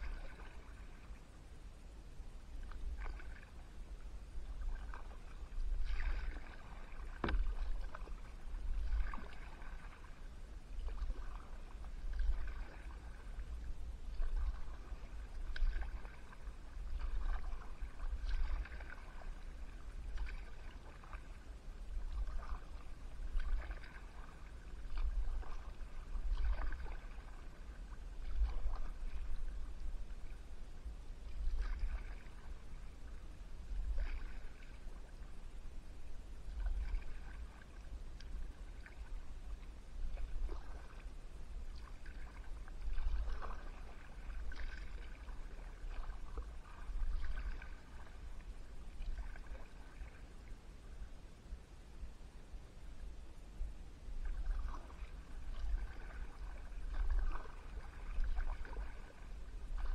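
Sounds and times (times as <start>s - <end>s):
paddle strokes in water: 0.0s - 1.6s, 2.2s - 51.6s, 52.8s - 59.9s.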